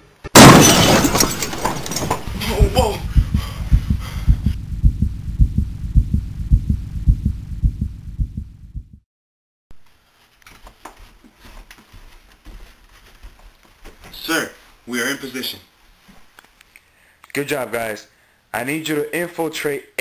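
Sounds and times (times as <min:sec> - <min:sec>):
heartbeat thumps: 0:02.1 - 0:09.0.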